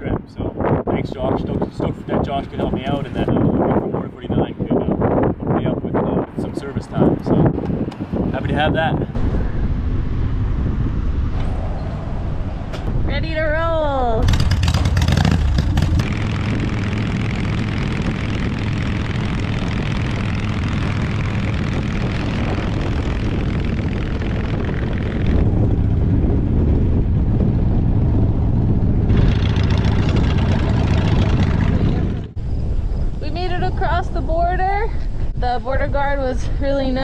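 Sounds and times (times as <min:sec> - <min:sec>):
wind noise: 0:00.0 - 0:37.0
motorcycle engine running: 0:14.2 - 0:32.4.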